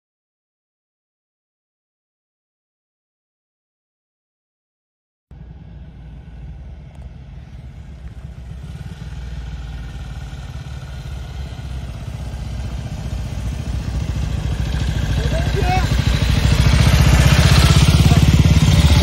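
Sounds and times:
motorcycle engines running: 0:05.3 - 0:19.0.

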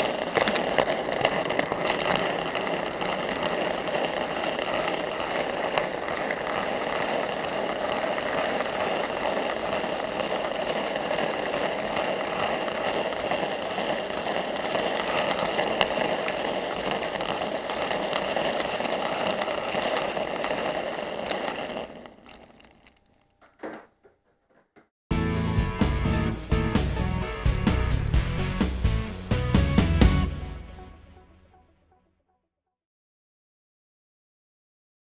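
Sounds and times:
model train wheels on rails: 0:00.0 - 0:24.6.

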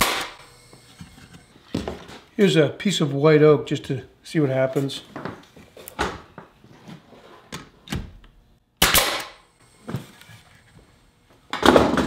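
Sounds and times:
nail gun firing: 0:00.0 - 0:00.5, 0:08.8 - 0:09.4.

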